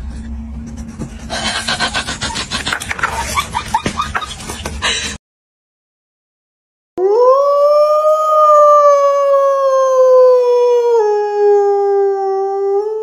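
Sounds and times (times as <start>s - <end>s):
dog howling: 7.0s - 13.0s.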